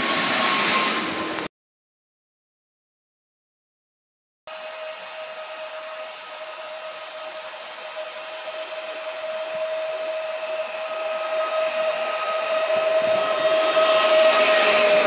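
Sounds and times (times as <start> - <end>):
train rumble: 0.0 - 1.5, 4.5 - 15.0
electric motor whine: 4.5 - 15.0.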